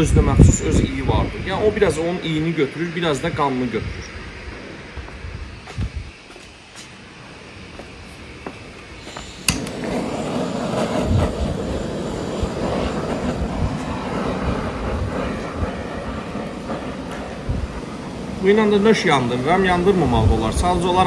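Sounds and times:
blowtorch flame rushing: 0.0s - 21.0s
blowtorch ignition click: 8.7s - 18.4s.

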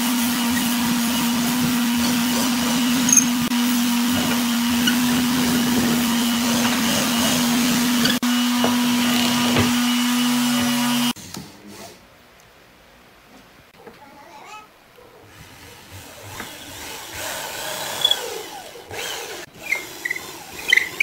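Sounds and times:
electric motor whirring: 16.3s - 21.0s.

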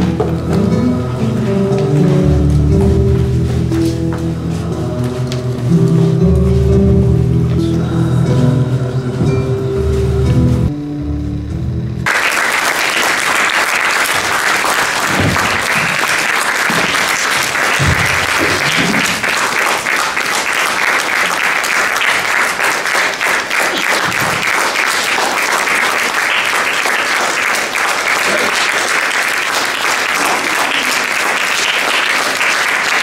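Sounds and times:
music: 0.0s - 12.1s
audience applause: 12.0s - 33.0s.

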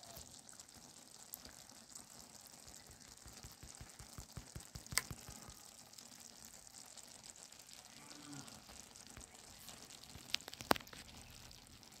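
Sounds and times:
broth simmering with faint hiss: 0.0s - 12.0s
sharp clicks: 3.4s - 5.4s.

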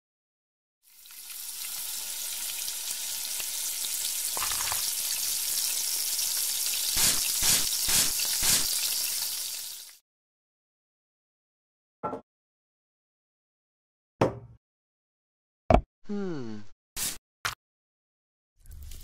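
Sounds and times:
egg sizzling in frying pan: 0.8s - 10.0s.

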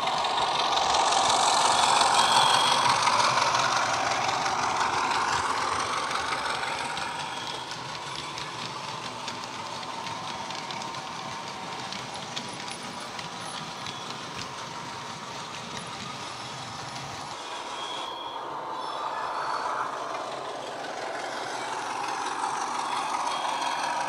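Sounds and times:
model diesel locomotive engine sound: 0.0s - 24.0s
model wagons clicking on track: 0.0s - 24.0s.

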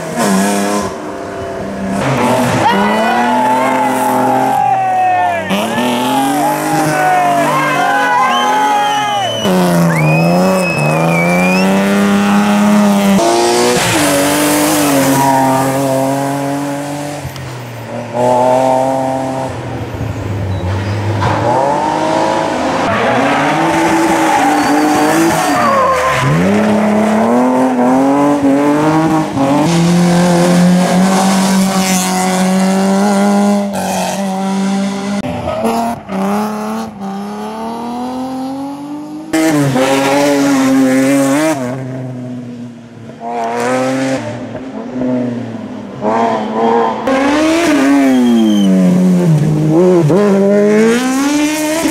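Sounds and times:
race car engines revving: 0.0s - 51.9s
tyre squeal: 22.9s - 26.5s, 47.8s - 48.8s.

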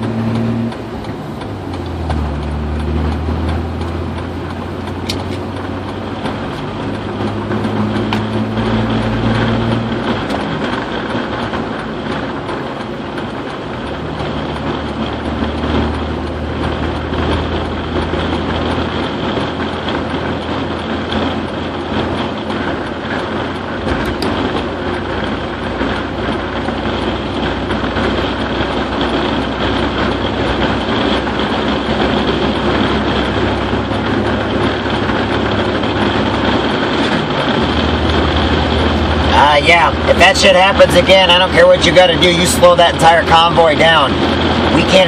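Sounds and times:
engine hum: 0.0s - 45.0s.

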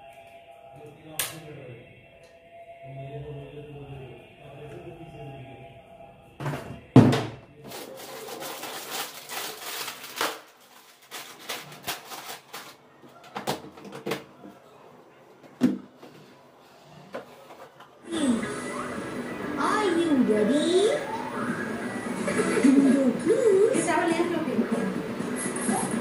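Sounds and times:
items knocking and clattering: 6.4s - 14.4s
plastic bag rustling: 7.6s - 13.3s.

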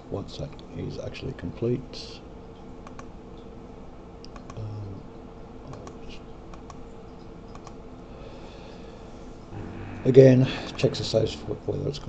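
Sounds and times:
faint steady hum: 0.0s - 12.0s
computer keys clicking: 2.8s - 3.1s, 4.2s - 4.6s, 5.7s - 7.8s.

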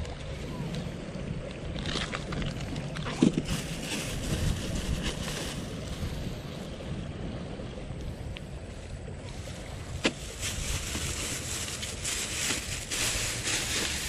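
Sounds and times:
wind buffeting microphone: 0.0s - 14.0s
plastic bag rustling: 1.8s - 5.9s, 9.4s - 14.0s.

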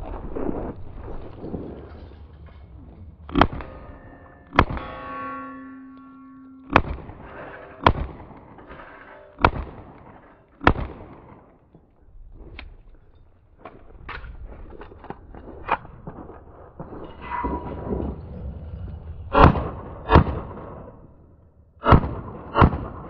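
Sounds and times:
slowed-down pistol shots: 3.2s - 5.3s, 6.7s - 11.7s, 19.3s - 21.2s, 21.8s - 23.0s
ringing tone: 3.5s - 7.8s.

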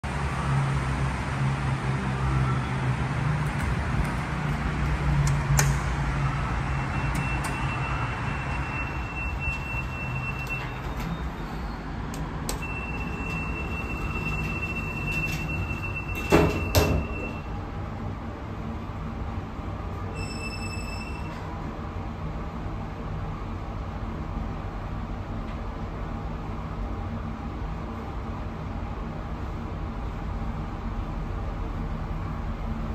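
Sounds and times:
steady high tone: 6.3s - 11.8s, 12.6s - 17.6s
lift doors closing with knocks: 6.9s - 11.6s, 12.5s - 17.5s.

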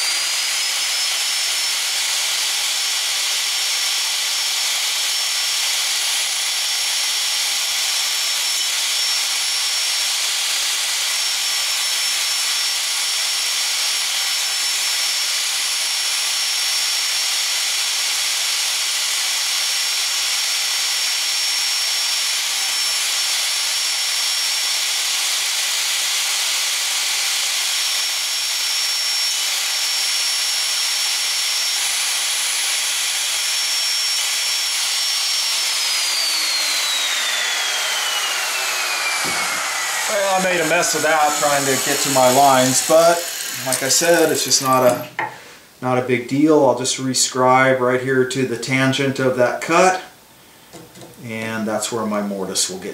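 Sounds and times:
motor spinning down: 0.0s - 2.6s, 33.4s - 45.1s
router cutting wood: 0.0s - 45.4s.

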